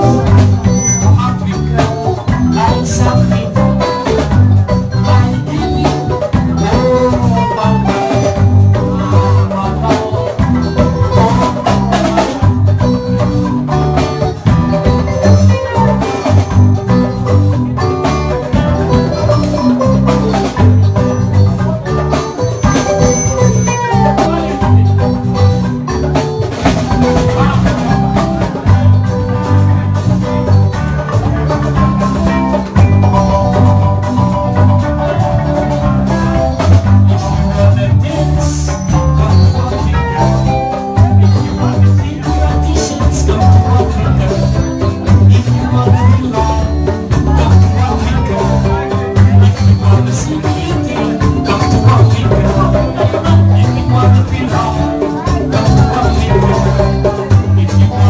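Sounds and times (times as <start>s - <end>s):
bass guitar: 0.0s - 58.0s
drum kit: 0.0s - 58.0s
guitars: 0.0s - 58.0s
steelpan melody: 0.0s - 58.0s.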